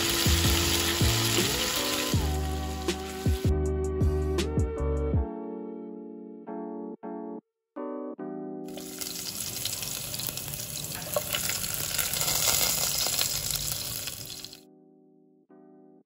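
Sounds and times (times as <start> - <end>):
garlic sizzling in hot oil: 0.0 - 3.5, 8.7 - 14.6
piano music: 0.0 - 16.0.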